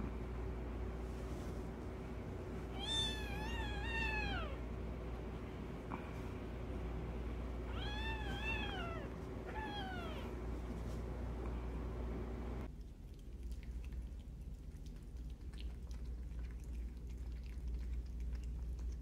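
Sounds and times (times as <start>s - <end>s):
kitten meowing: 2.7s - 4.6s, 7.7s - 10.3s.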